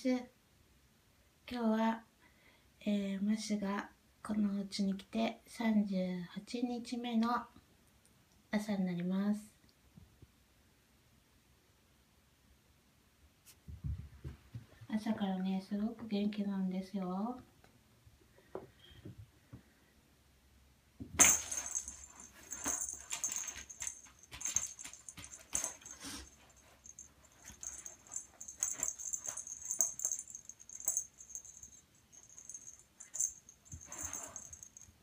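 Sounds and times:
jingling rattle: 0:21.2 - 0:35.0.

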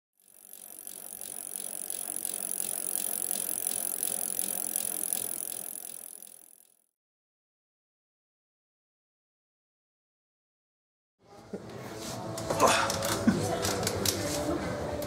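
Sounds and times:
bicycle freewheel ticking: 0:00.1 - 0:06.8.

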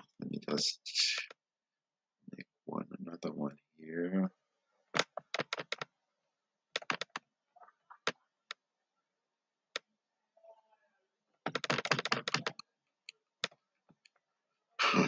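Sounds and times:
mouse and keyboard clicking: 0:06.8 - 0:07.2, 0:11.5 - 0:12.6.

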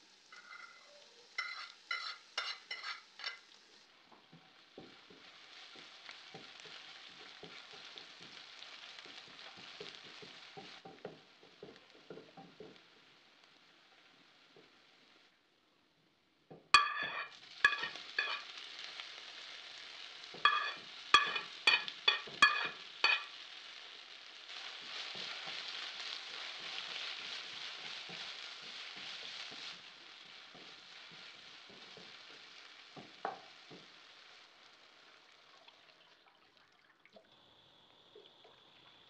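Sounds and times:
tomatoes sizzling in hot oil: 0:00.0 - 0:36.2, 0:37.2 - 0:39.0
spatula knocking on pan: 0:04.3 - 0:12.8, 0:16.5 - 0:18.4, 0:20.4 - 0:23.4, 0:30.3 - 0:33.9.

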